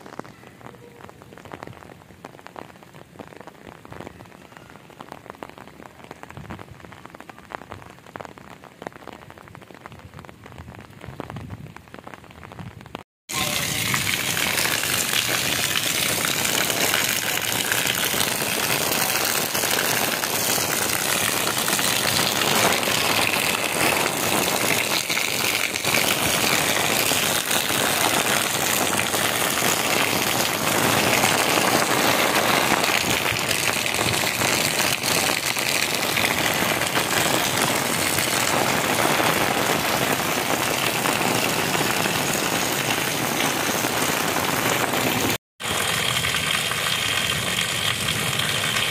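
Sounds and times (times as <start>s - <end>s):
rain pattering on an umbrella: 0.0s - 48.9s
water splashing onto concrete: 13.3s - 48.9s.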